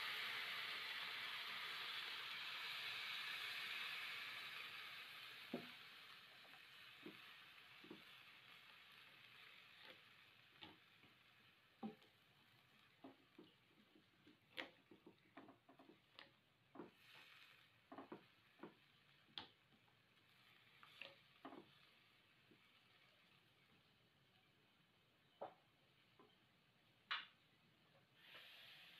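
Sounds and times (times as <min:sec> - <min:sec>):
frying sizzle: 0:00.0 - 0:26.4, 0:28.0 - 0:28.9.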